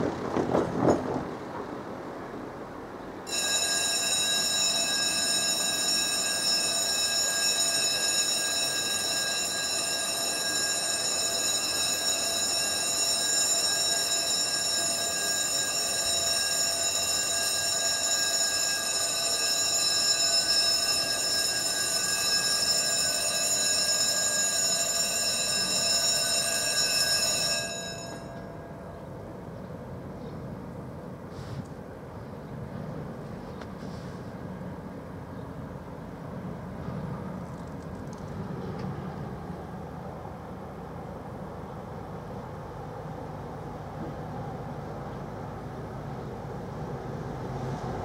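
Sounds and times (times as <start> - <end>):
level crossing warning bell: 3.2 - 30.8
car passing: 45.4 - 48.0.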